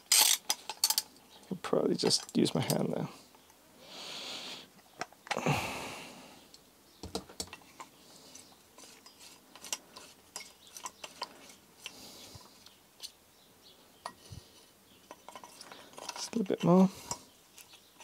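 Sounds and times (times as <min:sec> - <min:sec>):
metal parts clicking: 0:00.0 - 0:01.2, 0:07.4 - 0:12.0, 0:15.0 - 0:18.0.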